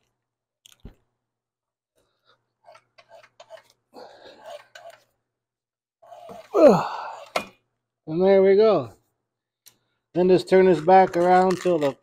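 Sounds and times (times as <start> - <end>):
belt scraping and rubbing: 2.6 - 5.1, 6.0 - 6.6.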